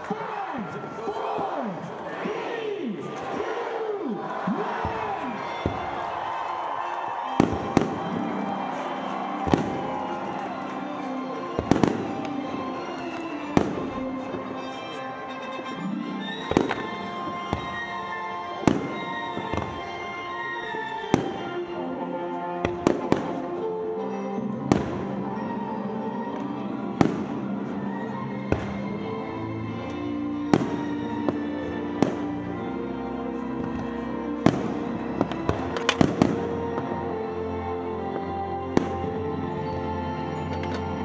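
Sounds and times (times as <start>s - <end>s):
background music: 0.0s - 41.0s
fireworks bangs: 4.7s - 14.8s, 16.3s - 21.6s, 34.4s - 37.0s.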